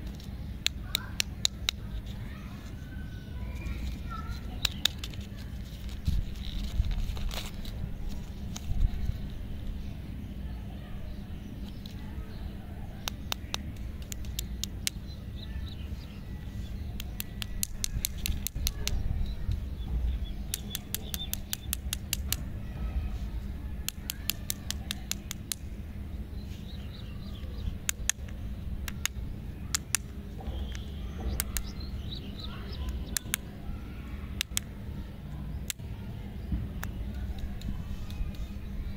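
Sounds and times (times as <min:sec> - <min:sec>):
lollipops clicking when handled: 0:00.0 - 0:02.2, 0:03.7 - 0:09.8, 0:13.0 - 0:15.2, 0:16.8 - 0:19.6, 0:20.4 - 0:22.5, 0:23.8 - 0:25.8, 0:27.3 - 0:33.6, 0:34.3 - 0:34.8, 0:35.6 - 0:35.9, 0:36.8 - 0:38.8
faint bird chirps: 0:22.6 - 0:38.9.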